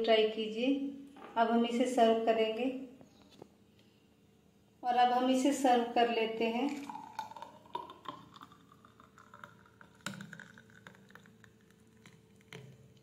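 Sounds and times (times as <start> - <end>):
milkshake pouring and splashing: 6.5 - 13.0.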